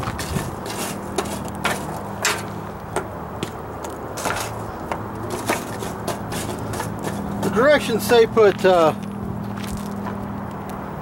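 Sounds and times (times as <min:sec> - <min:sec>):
charcoal clacking on steel pan: 0:00.2 - 0:07.6.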